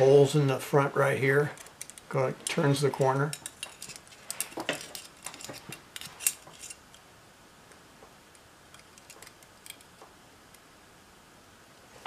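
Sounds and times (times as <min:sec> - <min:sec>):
tin toy parts clicking and scraping: 0:01.6 - 0:02.6, 0:03.2 - 0:06.8, 0:08.7 - 0:10.0.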